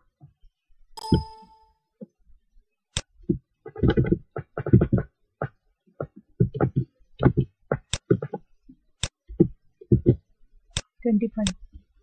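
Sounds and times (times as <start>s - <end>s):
short ringing tone: 1.0s - 1.7s.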